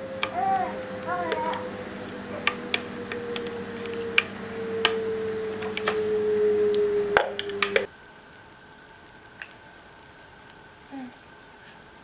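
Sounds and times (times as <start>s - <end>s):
steady tone: 0.0s - 7.9s.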